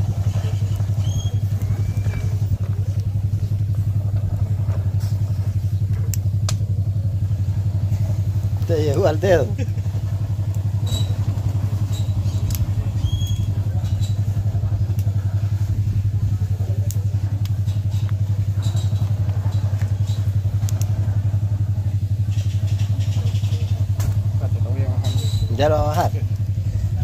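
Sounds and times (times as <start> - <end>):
low pulsing drone: 0.0 - 27.0
cashew shells crackling and popping: 7.6 - 15.2, 16.7 - 24.5.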